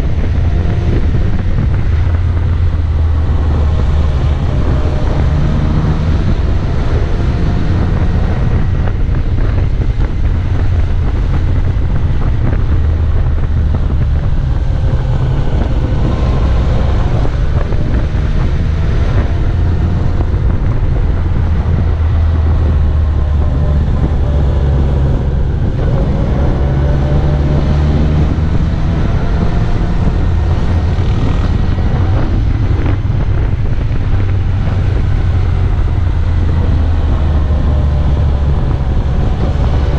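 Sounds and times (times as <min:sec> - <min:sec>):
motorcycle engine running: 0:00.0 - 0:39.9
wind rushing over microphone: 0:00.0 - 0:39.9.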